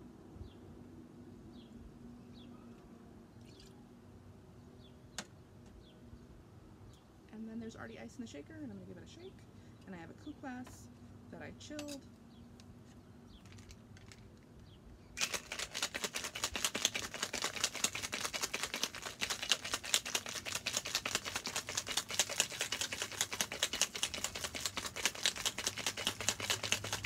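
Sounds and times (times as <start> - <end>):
ice rattling in cocktail shaker: 15.2 - 27.0.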